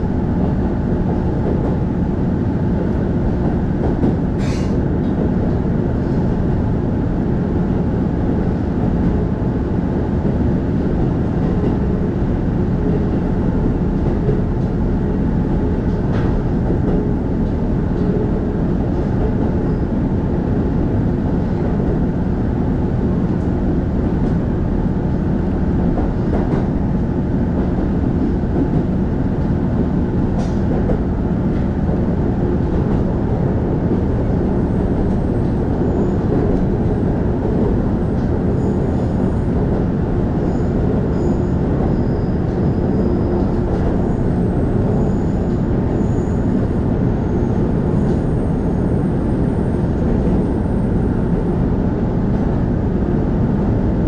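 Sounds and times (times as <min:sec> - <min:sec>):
railcar rumble: 0:00.0 - 0:54.0.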